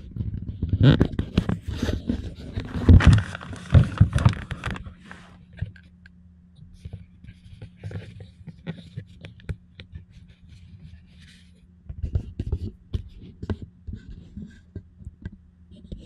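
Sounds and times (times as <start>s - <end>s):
faint steady hum: 0.0s - 16.0s
camera handling rustling and knocks: 0.3s - 4.9s.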